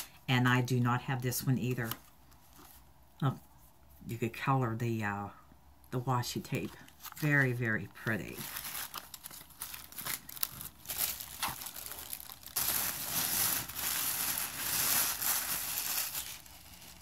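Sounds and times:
wrapping paper rustling: 0:06.6 - 0:17.0.

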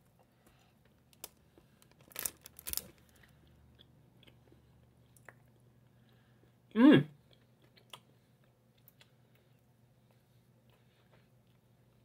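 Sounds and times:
chocolate crunching: 0:01.0 - 0:04.5
quiet chewing: 0:07.2 - 0:12.0.

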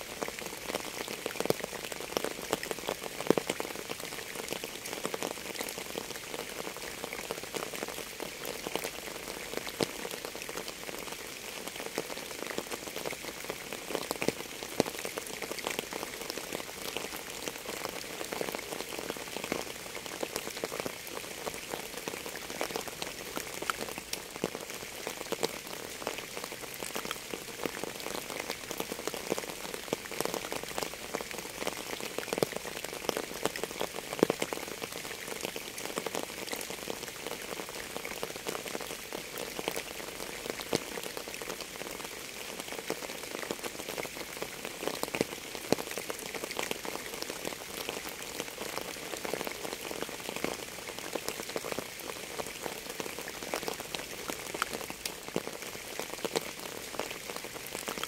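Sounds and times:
rain falling: 0:00.0 - 0:58.0.

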